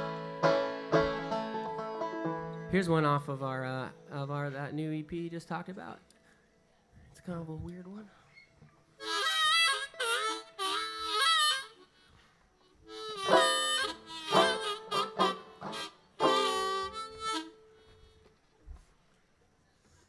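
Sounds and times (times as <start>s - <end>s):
harmonica playing chords: 0.0s - 2.8s, 9.0s - 18.3s.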